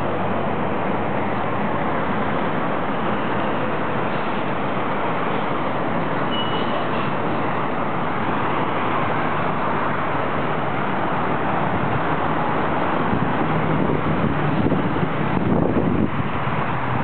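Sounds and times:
road traffic hum: 0.0 - 17.0
brief high squeak: 6.2 - 7.2.

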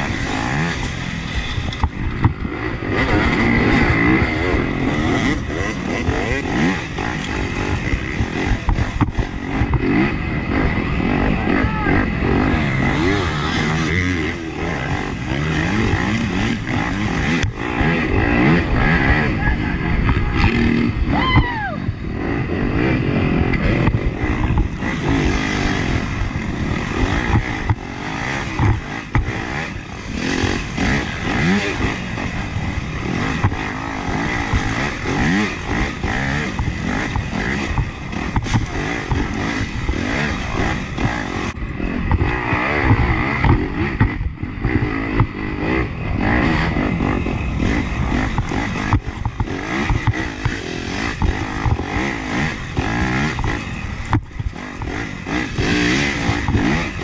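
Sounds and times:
dirt bike engine revving: 0.0 - 57.0
bike knocks and rattles: 0.3 - 3.8, 5.2 - 10.1, 23.6 - 31.6, 33.1 - 45.8, 47.6 - 57.0.

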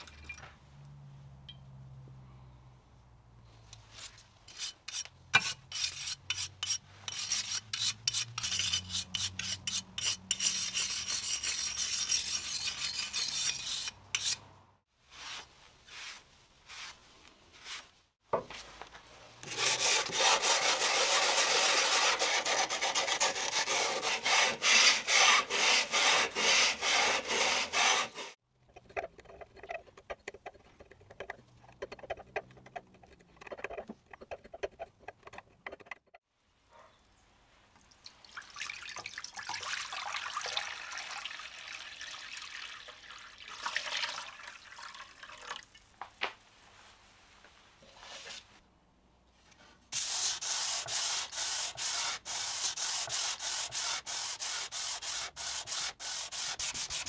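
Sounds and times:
abrasive pad scrubbing steel blade: 4.5 - 14.4, 19.5 - 28.4, 50.0 - 57.0.

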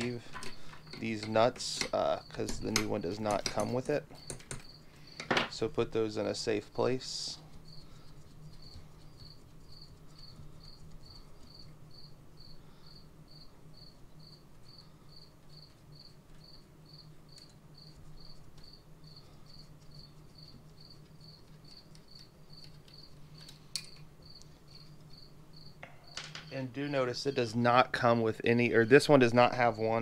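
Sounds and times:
low steady hum: 0.0 - 30.0
cricket chirping: 8.6 - 27.6.

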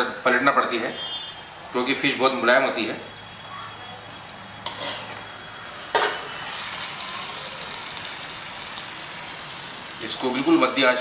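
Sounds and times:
metal spoon scraping a pan: 4.6 - 5.2
fish sizzling in oil: 6.2 - 11.0.

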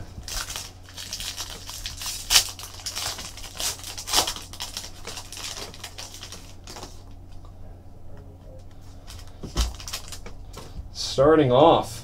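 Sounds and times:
plastic wrapping crinkling and tearing: 0.2 - 7.1, 9.0 - 10.4.

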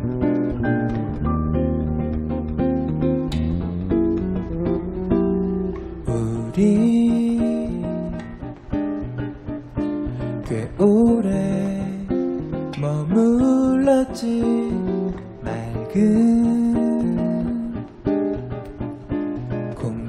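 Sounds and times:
plucked classical guitar: 0.0 - 20.0
man singing a slow ballad: 6.0 - 8.4, 10.3 - 17.9, 19.7 - 20.0.

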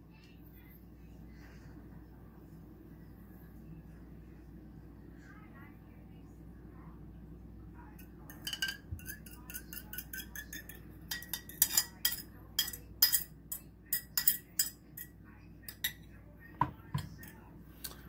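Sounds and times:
fork clinking against ceramic bowl: 8.3 - 16.1.

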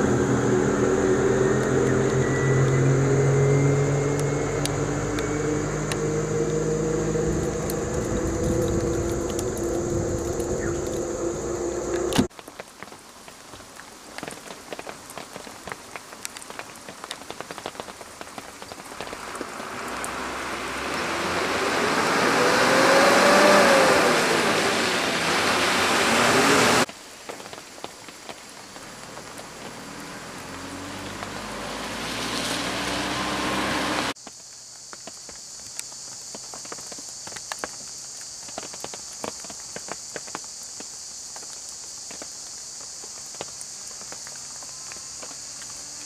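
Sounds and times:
bus diesel engine: 0.0 - 12.3, 19.1 - 26.9, 28.9 - 34.2
distant traffic: 0.0 - 12.3, 18.8 - 26.9, 28.7 - 34.2
rain pattering on wet road: 4.1 - 11.0, 11.9 - 46.0.

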